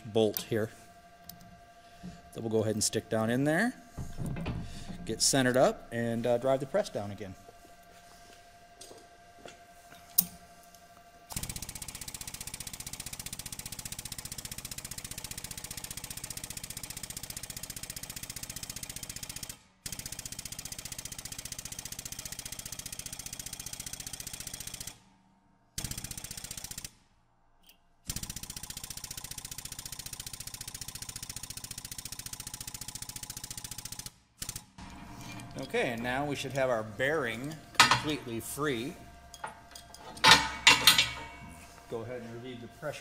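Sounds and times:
hydraulic press pump pulsing: 0.0s - 9.0s.

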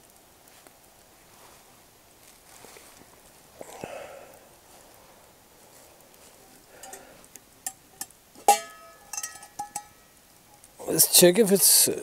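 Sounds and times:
faint rustling of movement: 0.0s - 11.9s
metal pot clicks: 6.8s - 7.0s, 7.6s - 10.0s.

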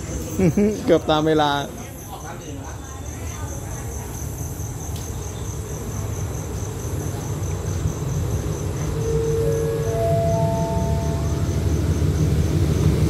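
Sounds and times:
diesel locomotive rumbling: 0.0s - 1.7s, 4.1s - 13.0s
crickets chirping: 0.0s - 13.0s
locomotive horn: 8.9s - 12.0s.

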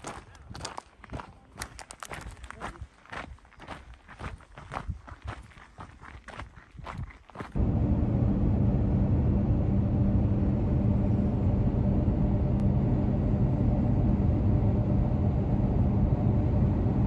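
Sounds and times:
car engine and road rumble: 7.6s - 17.0s.

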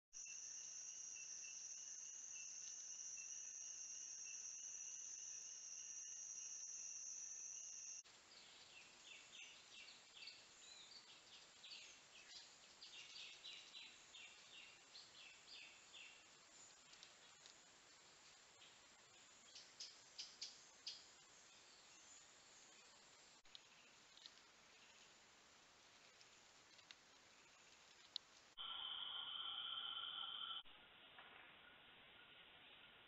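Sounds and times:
pulsing insect tone: 0.2s - 8.0s, 28.6s - 30.7s
insect chorus drone: 0.2s - 23.9s, 28.6s - 30.7s.

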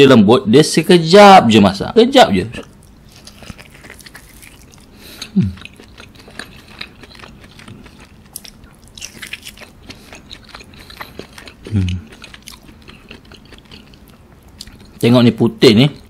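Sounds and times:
close-miked chewing: 2.5s - 16.0s
person humming: 11.7s - 12.0s.

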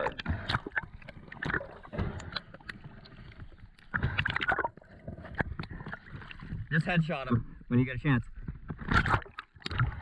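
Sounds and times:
water sloshing and splashing: 0.0s - 10.0s.

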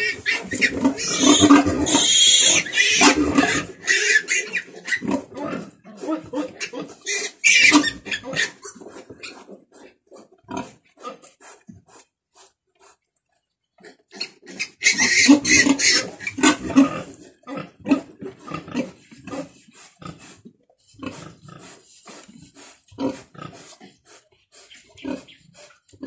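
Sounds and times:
piglet squealing: 0.0s - 5.6s, 6.6s - 8.7s, 14.5s - 16.9s.

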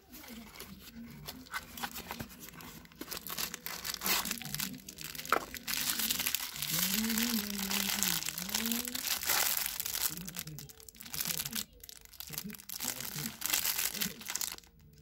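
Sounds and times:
cardboard box rustling: 0.0s - 10.2s
plastic packets crinkling: 0.0s - 15.0s.

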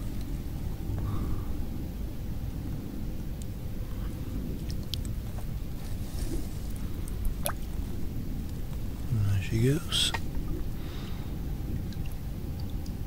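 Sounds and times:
steady low rumble: 0.0s - 13.0s
water sloshing and dripping: 3.9s - 9.1s, 10.1s - 13.0s.

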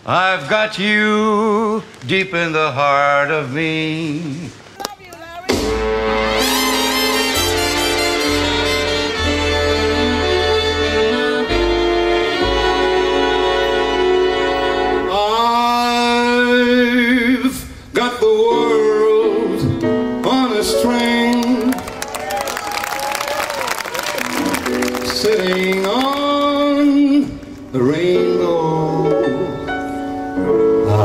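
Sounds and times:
big band brass and saxophones: 5.4s - 17.5s
bass line: 5.5s - 15.5s.

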